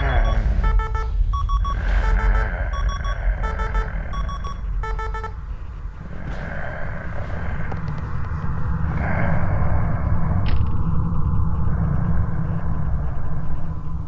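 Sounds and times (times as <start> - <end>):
alarm clock beeping: 0.0 - 5.5
low rumble and hiss: 0.0 - 14.0.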